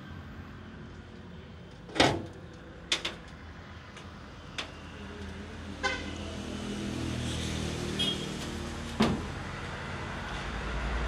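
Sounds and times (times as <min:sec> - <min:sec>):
sharp clicks and knocks: 0:01.9 - 0:04.8.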